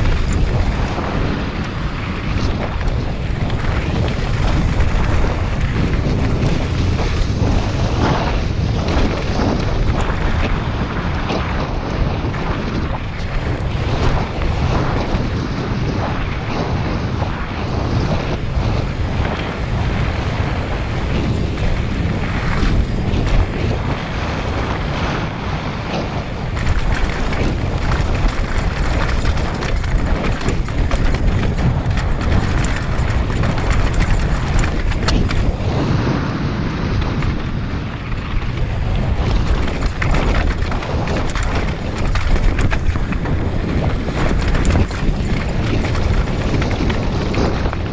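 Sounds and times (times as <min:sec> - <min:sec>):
bike frame rattling on rocks: 0:00.0 - 0:10.6, 0:26.5 - 0:35.8, 0:38.2 - 0:47.9
wind buffeting microphone: 0:00.0 - 0:47.9.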